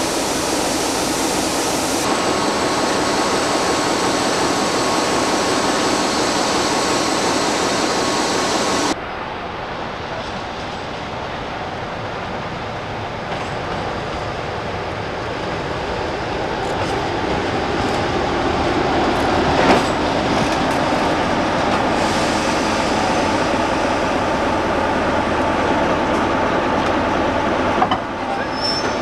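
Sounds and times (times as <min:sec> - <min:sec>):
diesel locomotive engine: 0:00.0 - 0:29.0.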